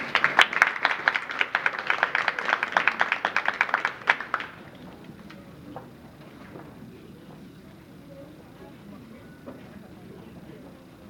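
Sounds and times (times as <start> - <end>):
audience applause: 0.0 - 5.1.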